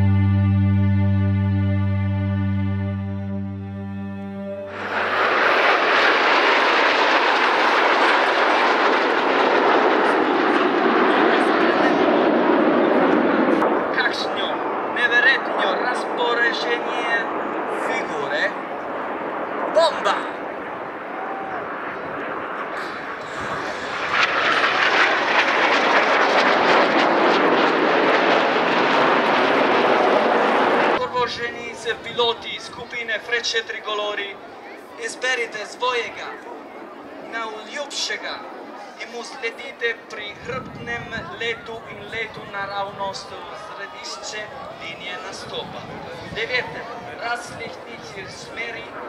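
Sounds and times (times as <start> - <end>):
jet aircraft roaring overhead: 0.0 - 49.0.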